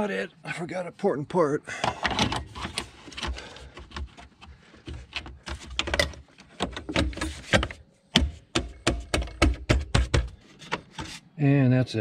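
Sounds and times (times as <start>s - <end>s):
plastic cover knocks and clicks: 4.9s - 10.8s.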